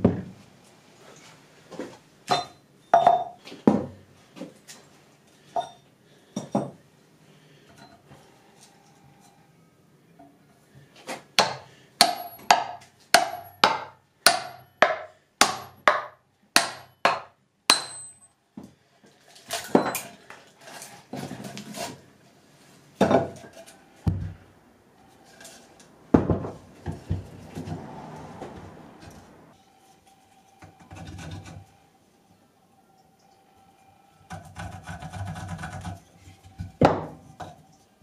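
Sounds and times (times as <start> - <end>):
wooden knocks and thuds: 3.7 - 4.0, 26.1 - 27.9
hammer striking metal axe head: 11.4 - 18.2.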